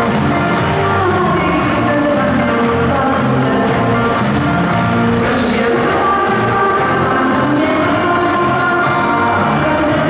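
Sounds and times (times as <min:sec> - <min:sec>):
children's song over loudspeakers: 0:00.0 - 0:10.0.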